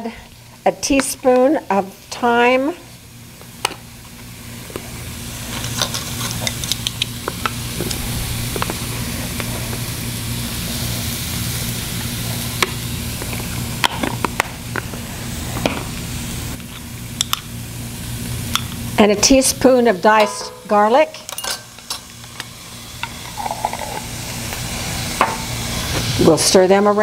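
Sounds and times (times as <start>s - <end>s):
vegetables sizzling in a skillet: 0.0s - 27.0s
low hum: 6.8s - 13.8s.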